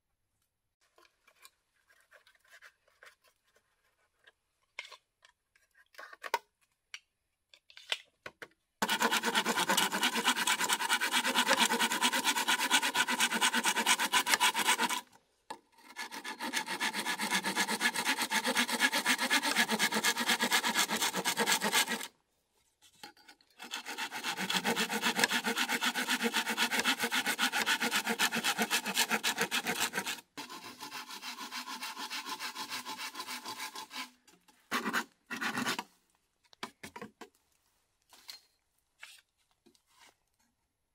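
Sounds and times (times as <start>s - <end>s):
knife scraping bamboo: 8.8s - 15.1s, 15.7s - 22.1s, 23.6s - 35.9s.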